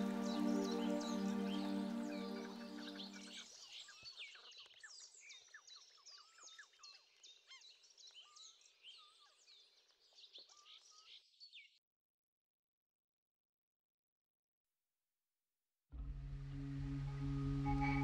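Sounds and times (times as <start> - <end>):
songbirds chirping: 0.0 - 11.6.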